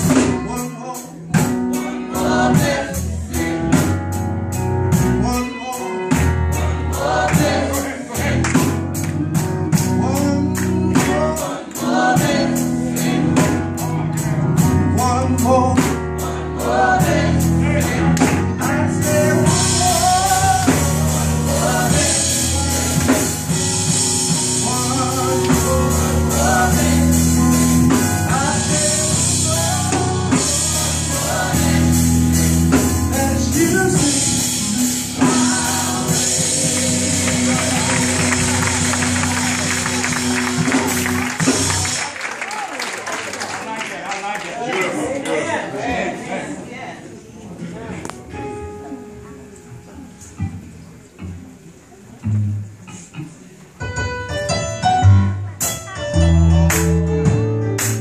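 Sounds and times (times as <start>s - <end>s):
gospel choir singing: 0.0s - 42.0s
band keeping a steady beat: 0.0s - 42.3s, 52.2s - 58.0s
male lead voices singing: 15.0s - 23.3s, 24.4s - 38.6s.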